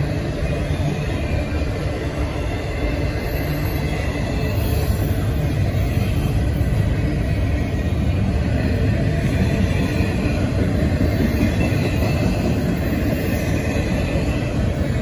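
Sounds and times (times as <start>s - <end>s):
freight train wheels on rails: 0.0s - 15.0s.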